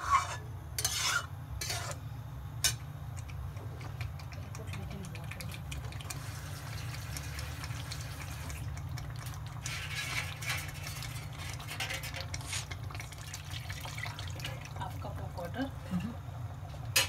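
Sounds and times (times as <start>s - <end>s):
curry sizzling and bubbling: 0.0s - 2.0s, 2.6s - 17.0s
spatula stirring and scraping: 0.0s - 2.0s, 3.4s - 13.4s
steady low hum: 0.0s - 17.0s
liquid pouring into pan: 3.9s - 15.4s.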